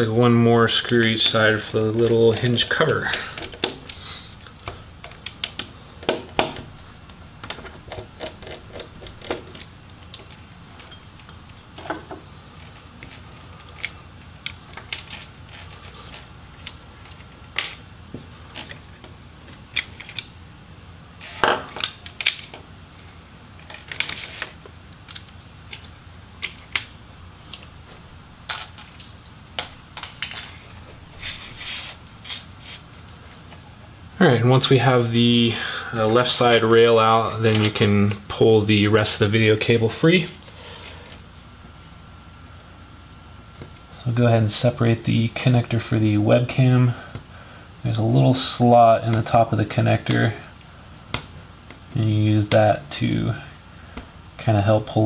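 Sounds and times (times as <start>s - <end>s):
laptop parts clicking and tapping: 4.6s - 6.6s.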